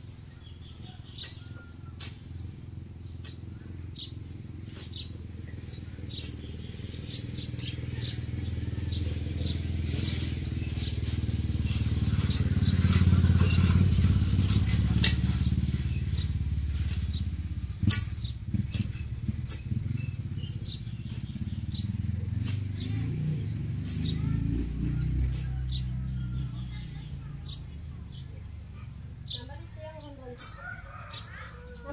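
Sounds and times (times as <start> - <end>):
brush cutter running: 5.6 - 17.5
sharp ticks: 12.1 - 24.6.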